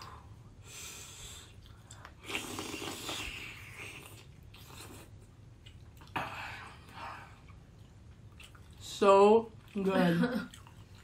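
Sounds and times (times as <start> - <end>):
person chewing: 1.4 - 8.9, 10.5 - 11.0.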